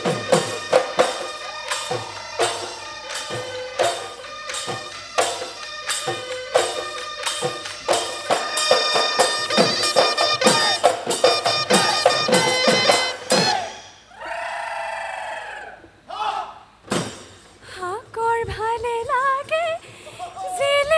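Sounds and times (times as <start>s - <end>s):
drum strokes: 0.0s - 14.1s
high ringing metallic tones: 0.0s - 14.1s.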